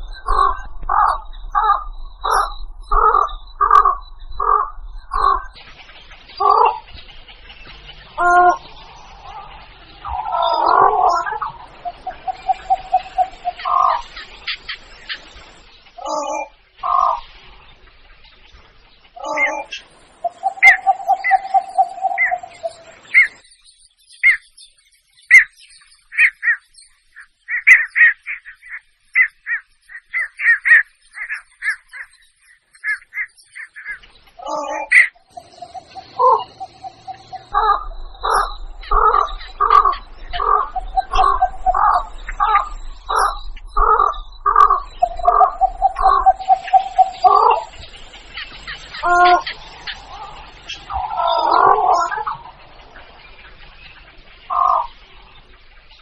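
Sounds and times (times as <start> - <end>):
heron calls: 0.3 - 5.5, 6.4 - 6.9, 8.2 - 14.0, 32.8 - 47.8, 48.9 - 52.4.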